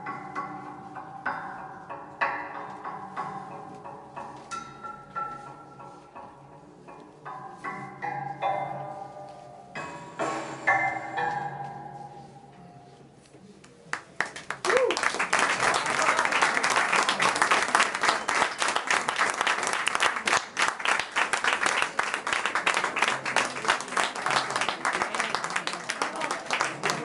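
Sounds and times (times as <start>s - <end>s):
audience applause: 13.9s - 27.0s.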